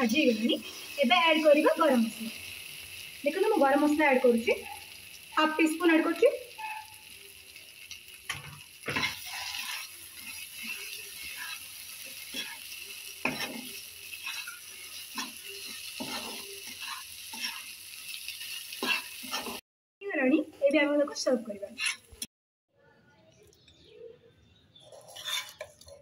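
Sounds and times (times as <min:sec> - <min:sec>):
oil sizzling: 0:00.0 - 0:19.6, 0:20.2 - 0:22.3
spatula scraping a pan: 0:08.3 - 0:19.6, 0:21.7 - 0:22.3, 0:24.8 - 0:26.0.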